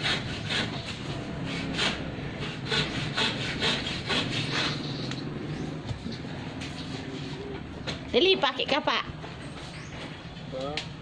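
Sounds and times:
hand saw cutting wood: 0.0s - 5.1s.

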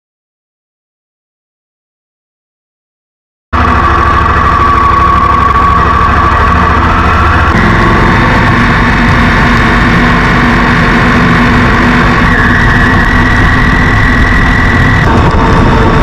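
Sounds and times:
vehicle engine running: 3.6s - 16.0s.

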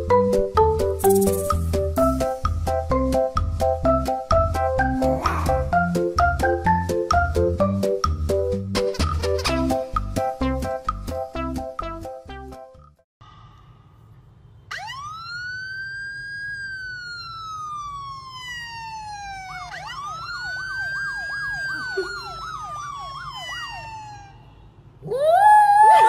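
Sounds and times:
police siren through phone speaker: 14.7s - 24.4s.

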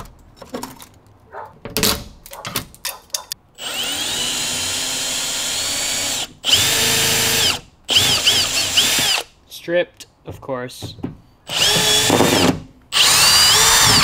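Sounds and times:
power drill running: 3.6s - 9.3s, 11.5s - 14.0s.

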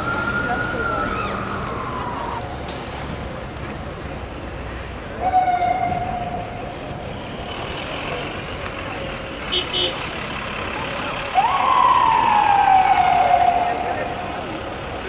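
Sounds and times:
emergency vehicle siren winding down: 0.0s - 2.6s, 5.2s - 7.0s, 11.3s - 15.0s
street noise: 0.0s - 15.0s.

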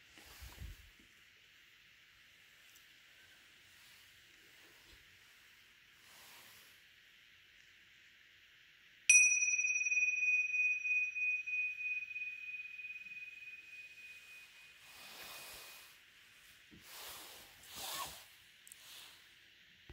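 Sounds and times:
small cymbals ringing: 9.1s - 16.1s.

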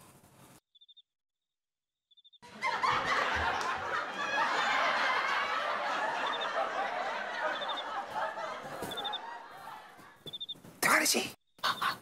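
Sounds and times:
laugh track: 2.4s - 10.3s.

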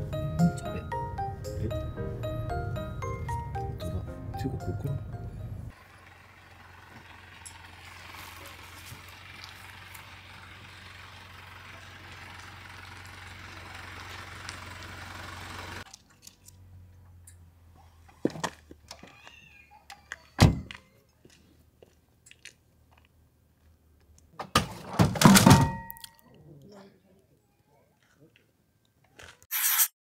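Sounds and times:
van engine hum: 0.0s - 19.1s.

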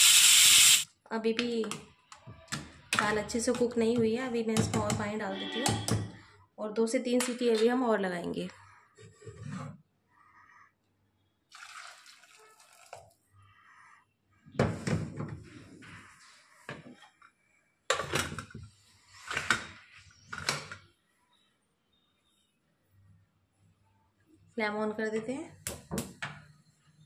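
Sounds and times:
water pouring into pot: 11.5s - 13.2s.

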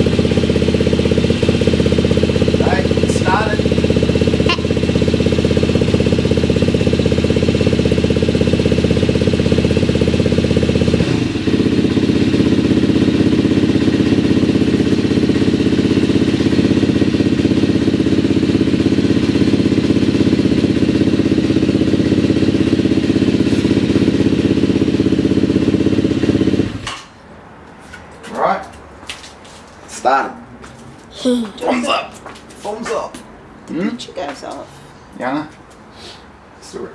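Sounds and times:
dirt bike engine running: 0.0s - 26.9s.

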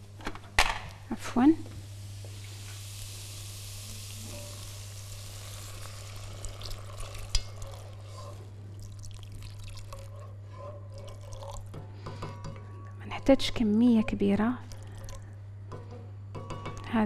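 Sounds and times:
food sizzling in oil: 1.8s - 11.6s
water pouring from kettle: 2.4s - 10.1s, 11.0s - 11.7s, 14.6s - 15.2s.

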